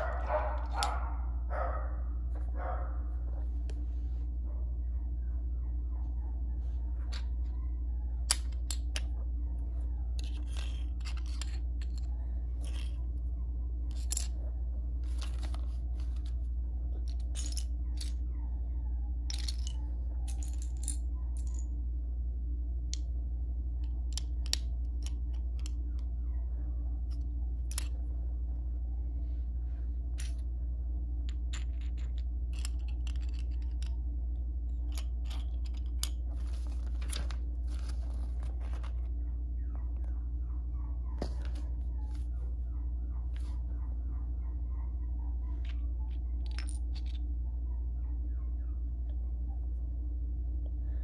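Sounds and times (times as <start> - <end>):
steady low hum: 0.0 - 51.0
plastic bricks clicking: 10.2 - 13.0, 13.9 - 14.3, 27.6 - 27.9.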